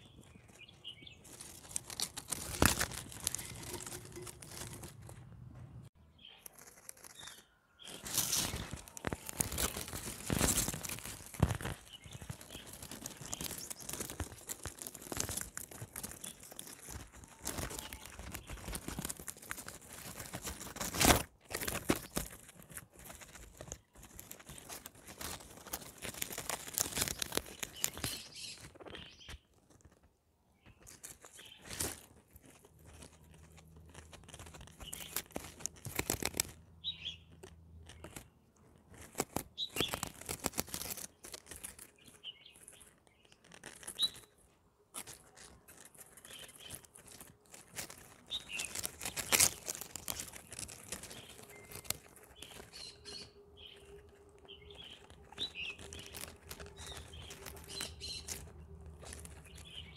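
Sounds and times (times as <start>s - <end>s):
guinea pigs crunching plants: 0.0s - 59.9s.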